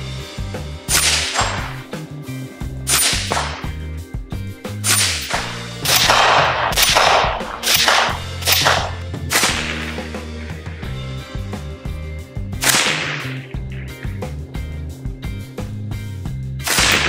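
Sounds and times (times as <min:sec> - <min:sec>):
background music with bass line: 0:00.0 - 0:17.0
sharp echoing beat hit: 0:04.9 - 0:10.3, 0:12.6 - 0:13.9.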